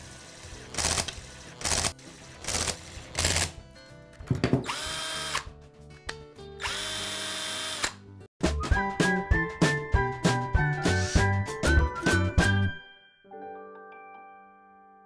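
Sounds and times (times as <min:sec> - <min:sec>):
cordless drill motor whining: 0:04.7 - 0:05.5, 0:06.6 - 0:08.0.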